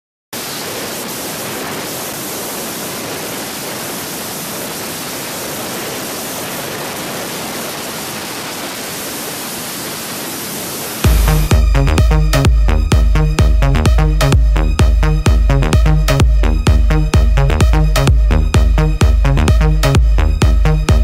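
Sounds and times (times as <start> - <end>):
wind and road noise: 0.4 - 11.5.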